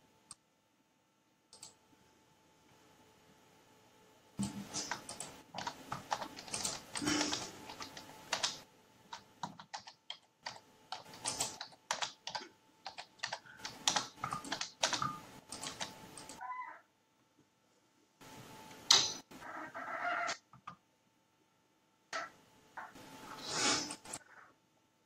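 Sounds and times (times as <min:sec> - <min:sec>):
typing on a keyboard: 0:01.5 - 0:01.8, 0:04.4 - 0:16.4.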